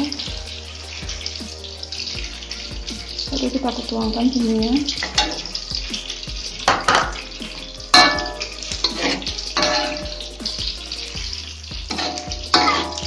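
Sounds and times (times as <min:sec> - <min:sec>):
background music: 0:00.0 - 0:13.0
metal spatula scraping a wok: 0:05.0 - 0:10.3, 0:11.9 - 0:13.0.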